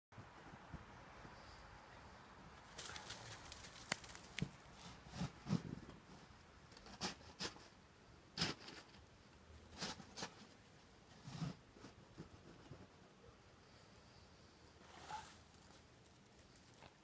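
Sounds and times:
snow shovel scraping snow: 0:14.8 - 0:15.4.

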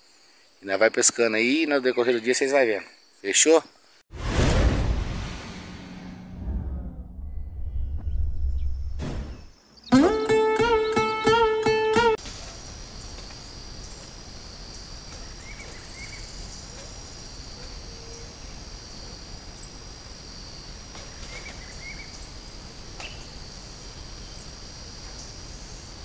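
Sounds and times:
insects trilling: 0:12.2 - 0:26.0.

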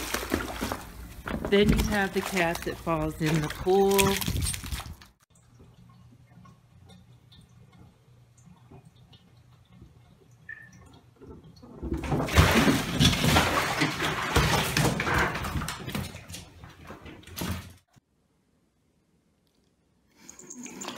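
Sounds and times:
cat splashing in bathtub: 0:00.0 - 0:05.1, 0:11.8 - 0:17.2.

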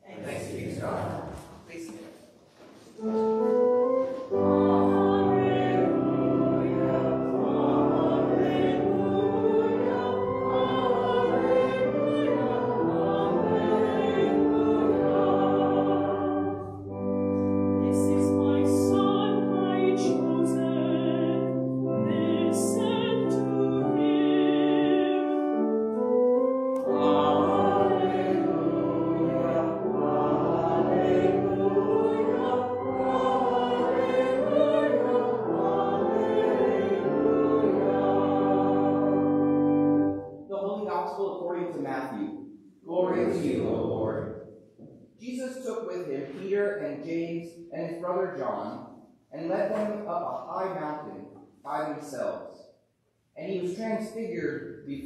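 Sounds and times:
congregation singing a hymn: 0:00.1 - 0:01.6, 0:03.0 - 0:40.4, 0:42.9 - 0:44.5
keyboard accompaniment: 0:03.0 - 0:41.6, 0:42.9 - 0:45.0.

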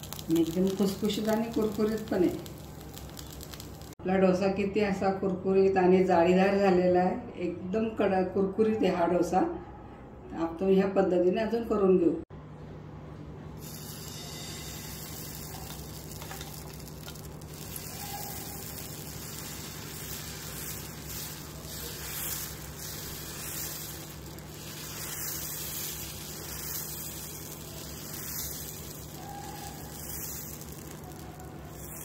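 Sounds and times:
batter sizzling on a hot griddle: 0:00.0 - 0:04.0, 0:13.6 - 0:32.0.

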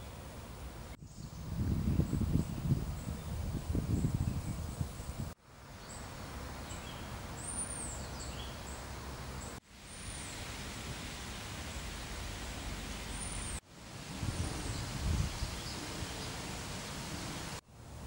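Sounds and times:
small birds chirping: 0:00.0 - 0:10.4
rustling breeze: 0:00.0 - 0:18.0.

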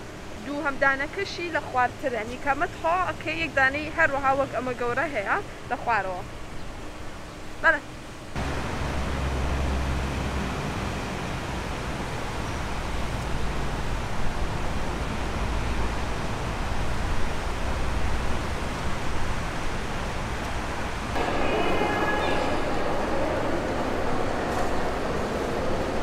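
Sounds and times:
echoing indoor crowd hubbub: 0:21.1 - 0:26.0.

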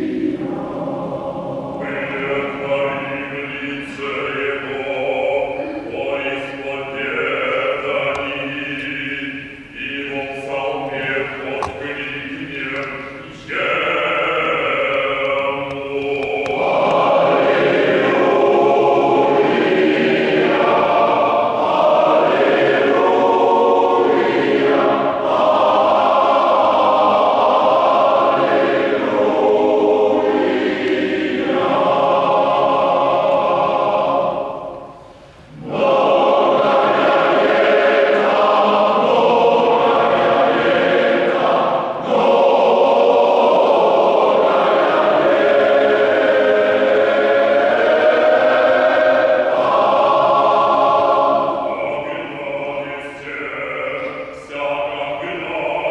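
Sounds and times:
male choir singing: 0:00.0 - 0:55.9.

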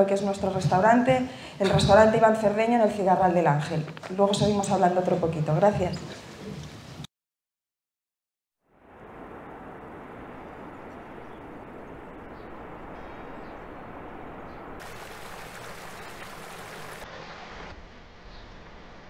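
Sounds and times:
river water pouring over a weir: 0:14.8 - 0:17.5.

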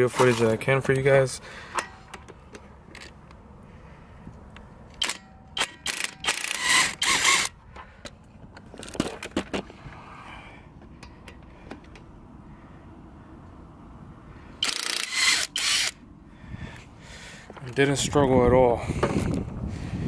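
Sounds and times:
impact wrench bursts: 0:05.0 - 0:07.6, 0:14.6 - 0:16.0.

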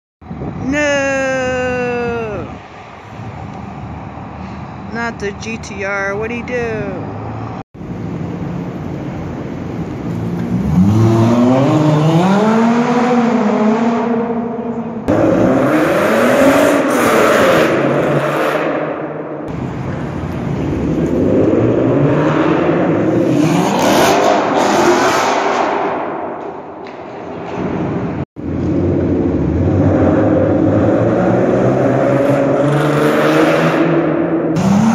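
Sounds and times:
car engines revving hard: 0:10.3 - 0:19.8, 0:20.4 - 0:26.0, 0:28.4 - 0:34.9.

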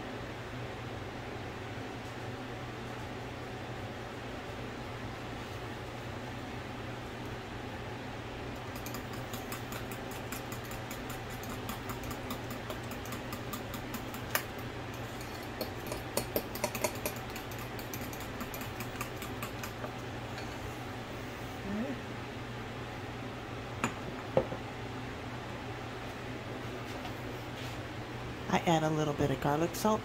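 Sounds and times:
kitchen fan hum: 0:00.0 - 0:30.0
spoon scraping bowl: 0:15.0 - 0:20.7.

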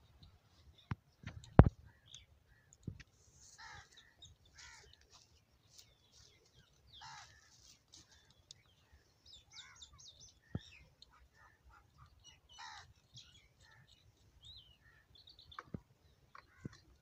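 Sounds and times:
small birds chirping: 0:00.0 - 0:17.0
crows cawing: 0:03.6 - 0:05.0, 0:07.0 - 0:07.6, 0:12.5 - 0:12.9.

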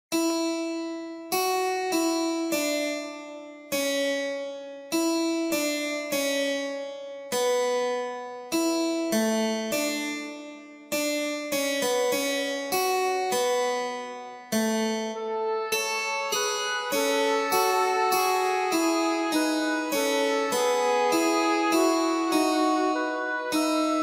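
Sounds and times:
keyboard chords ringing: 0:15.0 - 0:24.0.

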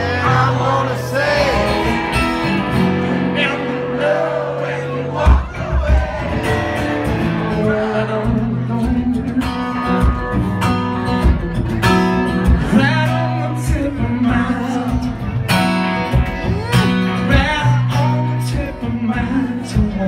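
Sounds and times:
person singing: 0:00.0 - 0:02.5, 0:16.2 - 0:20.0
bass guitar: 0:00.0 - 0:20.0
electric guitar: 0:00.0 - 0:20.0
drum beat: 0:05.2 - 0:06.7.

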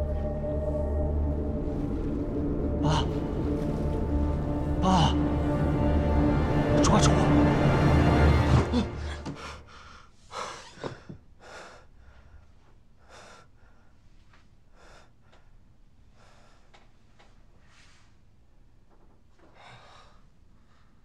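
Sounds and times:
man breathing heavily while asleep: 0:08.9 - 0:17.2, 0:19.4 - 0:21.0.

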